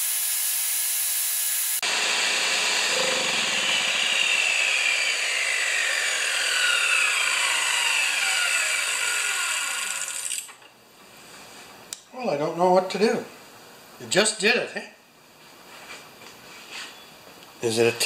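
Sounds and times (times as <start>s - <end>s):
circular saw whining: 0.0s - 10.6s.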